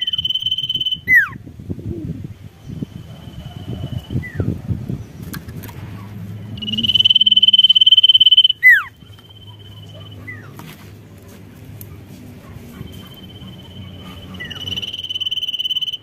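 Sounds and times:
downward-sweeping whistle: 0.0 - 1.2, 6.6 - 9.6, 13.0 - 16.0
bird trilling: 0.0 - 1.4, 6.0 - 10.5, 12.8 - 16.0.

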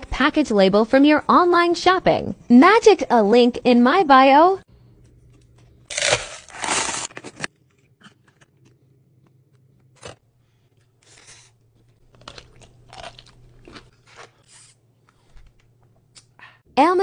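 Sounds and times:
plastic cup crackling: 5.9 - 7.5
crunchy chewing: 7.7 - 16.3.

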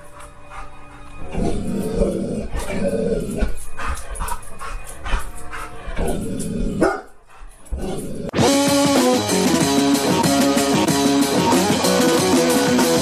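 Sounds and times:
dog barking: 6.8 - 7.2.

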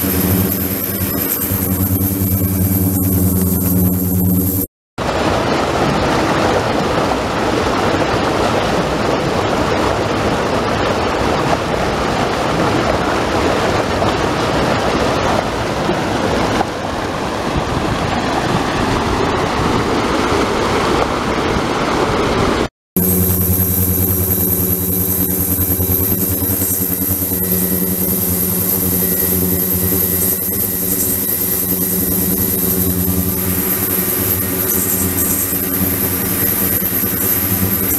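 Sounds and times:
machine hum: 0.0 - 4.7, 23.0 - 37.9
surf breaking against seawall: 5.0 - 37.9.

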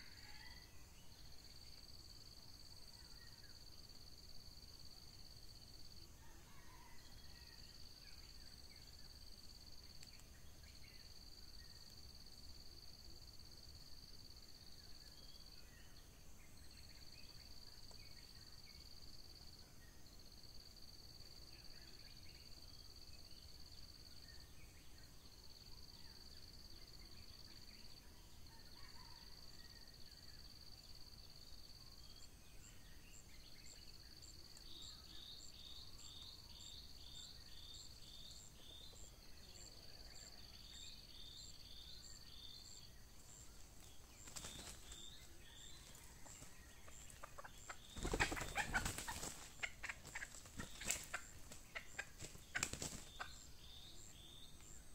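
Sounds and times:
insects droning: 0.0 - 54.9
wings flapping: 43.6 - 53.3.

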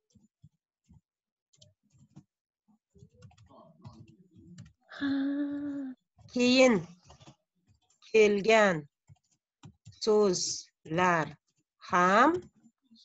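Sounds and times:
typing on computer keyboard: 3.1 - 4.0.

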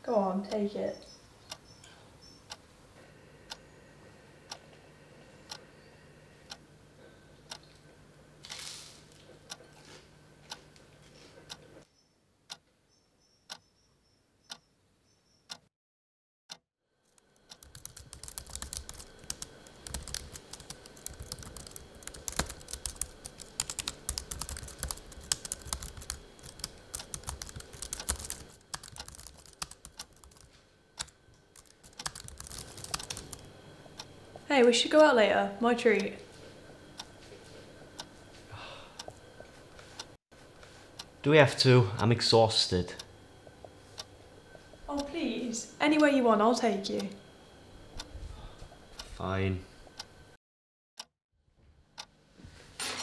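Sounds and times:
typing on a computer keyboard: 17.1 - 33.5.

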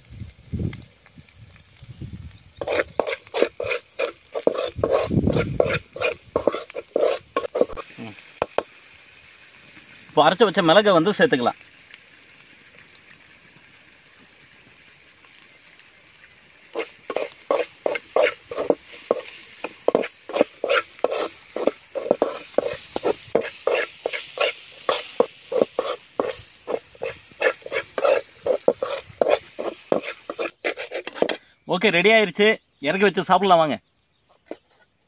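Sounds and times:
metal spoon scraping a pan: 2.6 - 8.7, 16.7 - 31.5.

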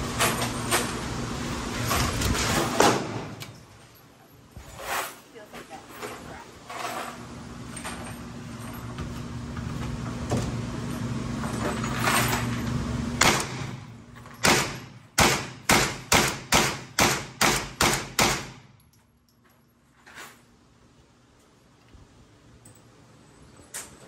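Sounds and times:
gunshots: 13.2 - 18.7.

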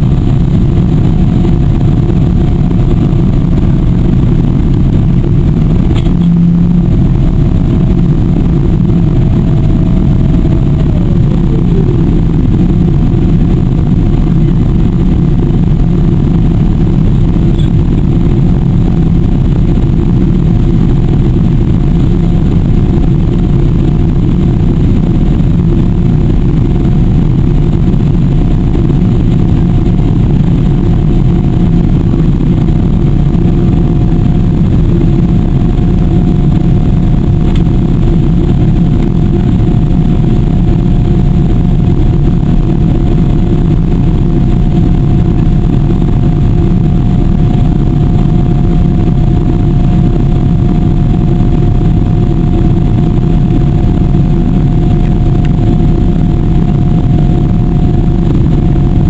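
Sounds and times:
aircraft engines rumbling: 0.0 - 59.0
faint steady whine: 0.0 - 59.0.

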